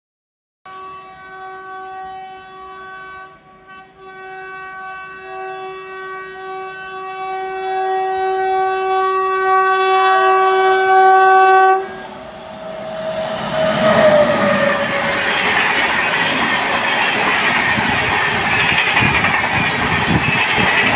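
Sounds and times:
locomotive air horn honking: 0.7s - 16.6s
train wheels clattering on rail: 12.7s - 20.9s.

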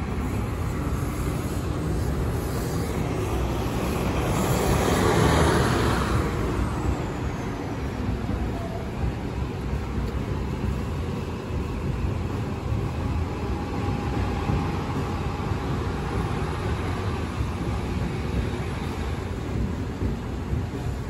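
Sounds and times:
bus and cars in slow traffic: 0.0s - 21.0s.

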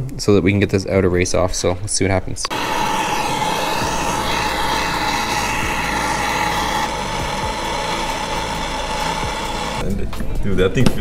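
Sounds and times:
gas torch hissing: 2.5s - 9.8s.

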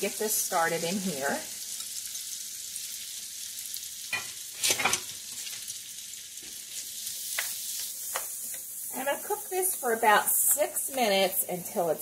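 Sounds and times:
vegetables sizzling in butter: 0.0s - 12.0s
utensil scraping a pan: 4.2s - 5.6s.

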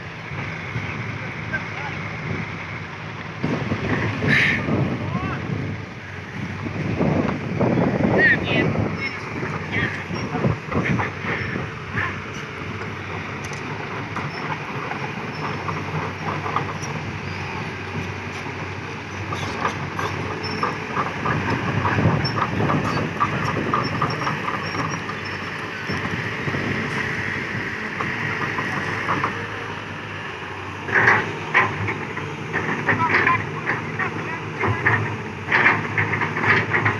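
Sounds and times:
diesel engine running: 0.0s - 36.9s
crawler tracks clanking: 0.3s - 36.9s
undercarriage squeak: 19.1s - 20.8s.

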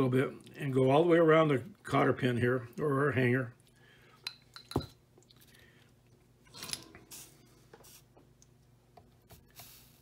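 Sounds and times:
soldering iron hissing: 9.4s - 10.0s.

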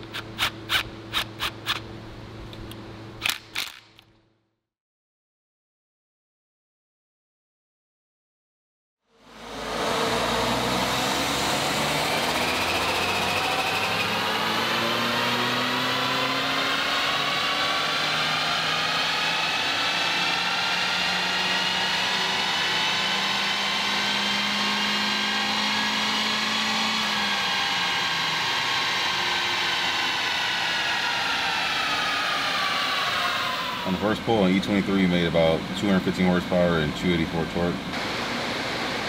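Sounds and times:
car engine on dyno: 9.1s - 39.0s.

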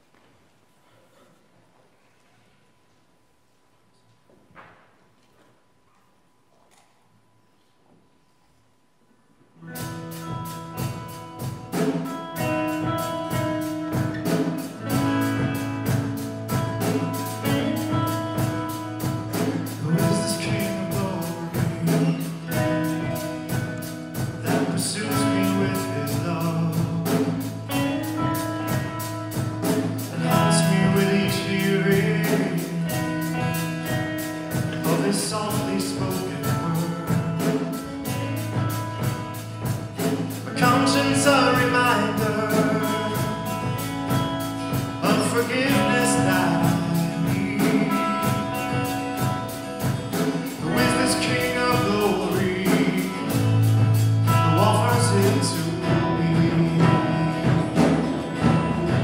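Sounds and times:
guitar: 9.4s - 59.0s
drums: 9.5s - 59.0s
man singing into microphone: 17.5s - 27.7s, 30.0s - 38.2s, 40.4s - 43.8s, 45.0s - 49.0s, 50.3s - 59.0s.

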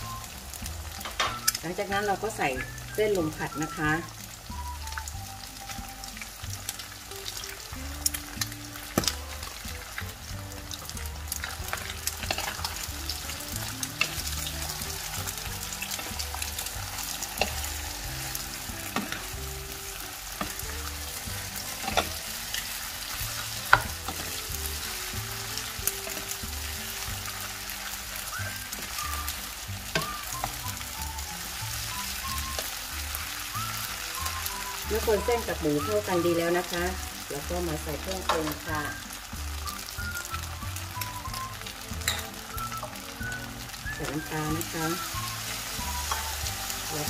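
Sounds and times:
food sizzling in hot oil: 0.0s - 47.0s
spatula scraping a pan: 11.3s - 19.4s, 20.4s - 29.0s.

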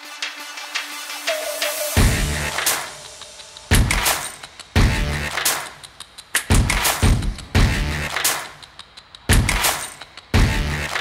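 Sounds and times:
electronic music: 0.0s - 11.0s
ticking percussion: 0.1s - 11.0s
deep bass hit: 2.0s - 2.6s, 7.6s - 8.1s.

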